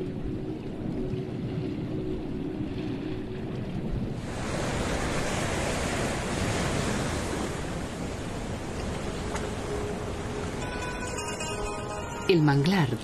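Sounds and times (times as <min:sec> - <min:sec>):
waves breaking on beach: 0:04.1 - 0:12.3.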